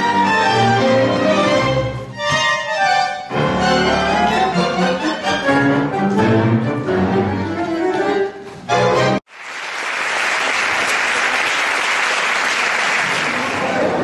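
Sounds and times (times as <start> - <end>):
tango orchestra playing: 0.0 - 9.3
audience applauding: 9.3 - 14.0.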